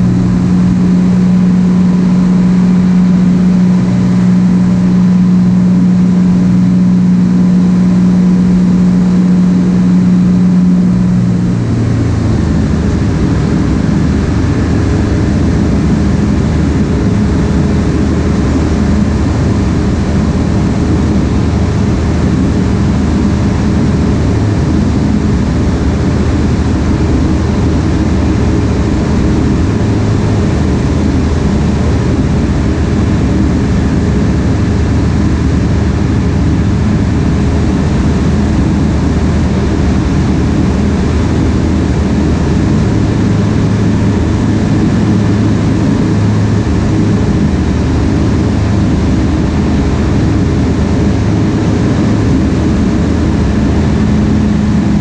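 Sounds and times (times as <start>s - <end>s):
aircraft engine and propeller: 0.0s - 55.0s
airflow noise: 0.0s - 55.0s.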